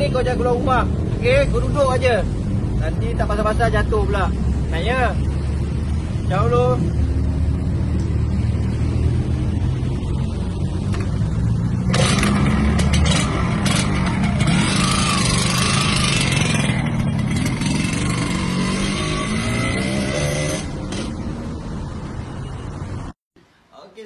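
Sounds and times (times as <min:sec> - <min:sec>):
street traffic: 0:00.0 - 0:24.0
motorcycle engine revving: 0:06.8 - 0:21.6.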